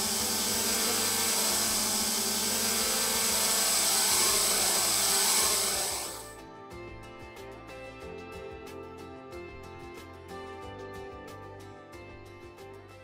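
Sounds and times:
drone propellers whirring: 0.0s - 6.3s.

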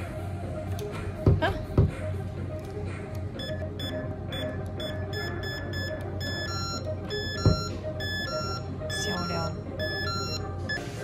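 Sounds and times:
keypad lock beeping: 3.4s - 10.9s.

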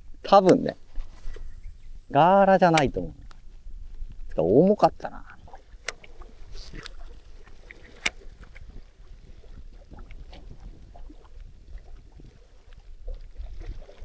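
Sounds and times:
wind rumble on microphone: 0.0s - 14.0s
sharp click: 2.6s - 3.4s
water sloshing and splashing: 2.6s - 14.0s.

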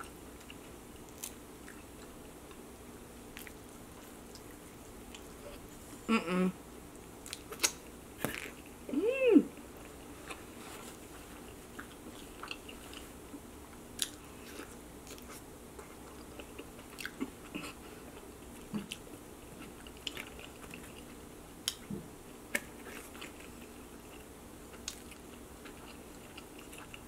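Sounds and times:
faint room hum: 0.0s - 27.0s
wet chewing clicks and smacks: 3.3s - 5.3s, 7.2s - 8.5s, 14.0s - 17.7s, 22.5s - 27.0s.

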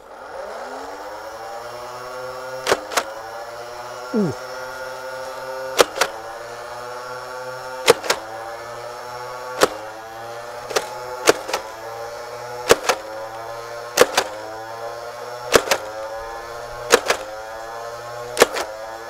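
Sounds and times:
electric flywheel motor whining: 0.0s - 19.0s
toy blaster shot clicks: 2.6s - 3.2s, 5.7s - 6.3s, 7.8s - 8.4s, 9.5s - 10.0s, 10.6s - 11.8s, 12.6s - 13.2s, 13.9s - 14.6s, 15.4s - 17.4s, 18.2s - 18.9s.

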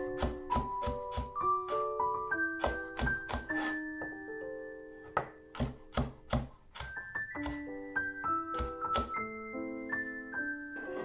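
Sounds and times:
knife chopping on wooden board: 0.0s - 4.1s, 5.1s - 7.7s, 8.5s - 9.2s
gentle piano music: 0.0s - 11.0s.

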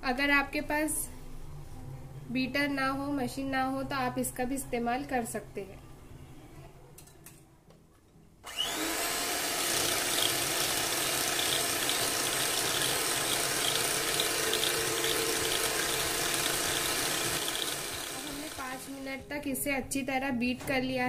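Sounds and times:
electric hand mixer whipping cream: 8.5s - 19.1s.

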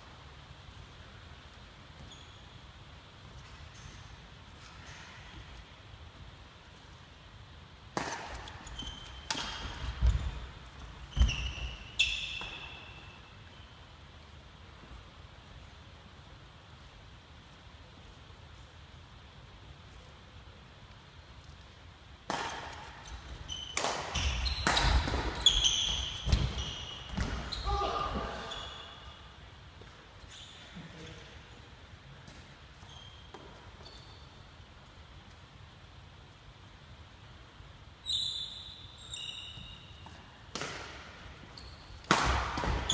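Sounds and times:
shoes squeaking on court: 1.9s - 5.2s, 8.3s - 13.3s, 22.7s - 29.2s, 29.8s - 31.0s, 32.3s - 34.5s, 38.0s - 40.4s, 41.4s - 42.9s
racket striking shuttlecock: 7.9s - 10.2s, 22.2s - 27.5s, 40.5s - 41.2s, 42.0s - 42.9s.

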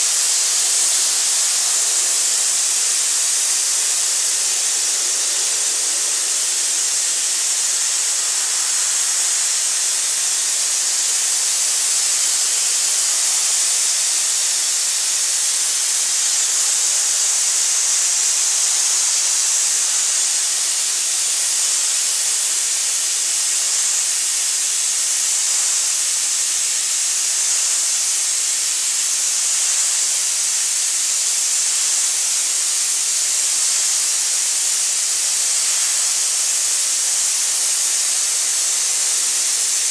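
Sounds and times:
abrasive blasting hiss: 0.0s - 39.9s.

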